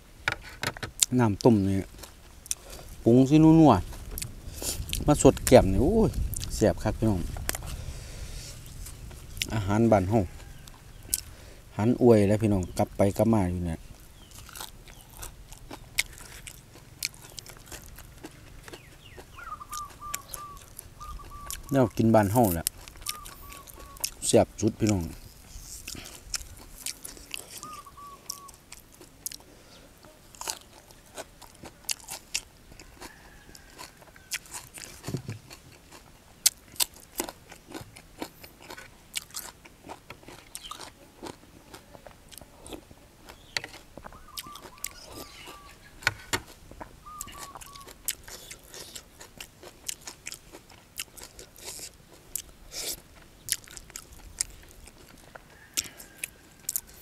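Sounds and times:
chewing and crunching food: 0:01.0 - 0:57.0
mouth clicks and smacks: 0:14.9 - 0:29.4, 0:43.6 - 0:45.7.

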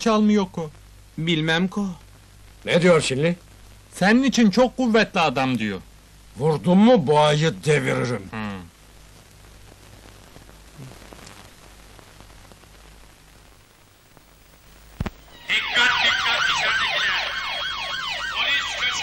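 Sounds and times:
police siren yelping: 0:15.3 - 0:19.0.

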